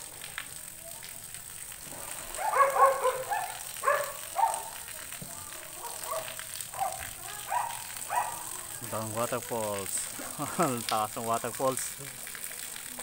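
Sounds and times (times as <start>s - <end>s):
dog barking: 2.3s - 4.9s, 5.7s - 8.6s.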